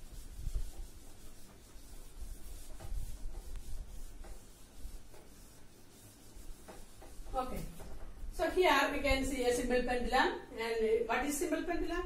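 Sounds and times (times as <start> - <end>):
duster wiping whiteboard: 0.0 - 10.0.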